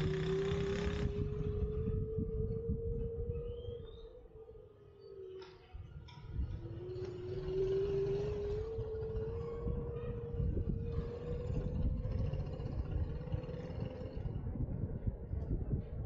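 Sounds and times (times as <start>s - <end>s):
car engine hum: 0.0s - 2.4s
wind rumble on microphone: 0.0s - 16.0s.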